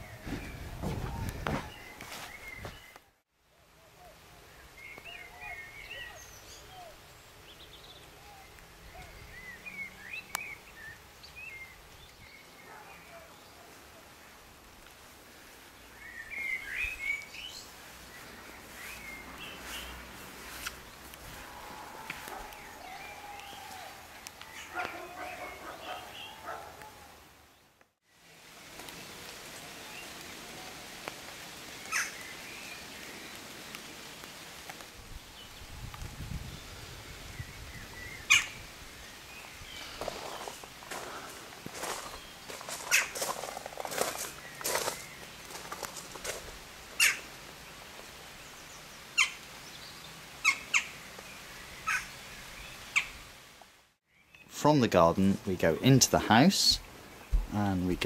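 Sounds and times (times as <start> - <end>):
crows giving sharp calls: 21.3 - 27.1, 31.9 - 32.2, 42.8 - 43.2, 47.0 - 47.3, 51.8 - 52.1.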